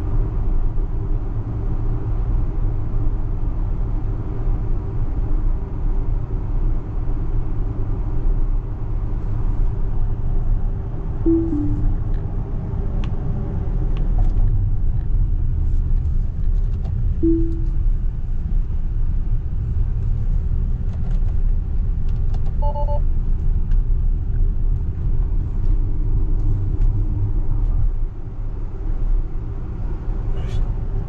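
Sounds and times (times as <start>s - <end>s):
road and tyre rumble: 0.0s - 31.0s
electronic chime: 11.3s - 12.0s, 17.2s - 17.8s, 22.6s - 23.0s
two-tone beep: 11.3s - 12.0s, 17.2s - 17.8s, 22.6s - 23.0s.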